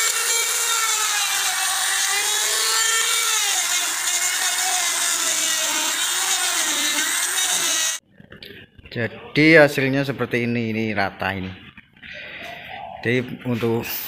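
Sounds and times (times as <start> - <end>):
router bit cutting wood: 0.0 - 8.0
router motor whining: 0.0 - 8.0.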